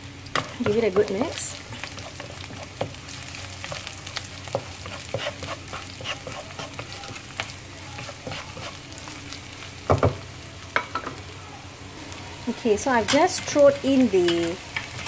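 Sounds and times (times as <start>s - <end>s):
vegetables sizzling in a wok: 0.0s - 15.0s
spatula stirring and scraping: 0.4s - 9.4s.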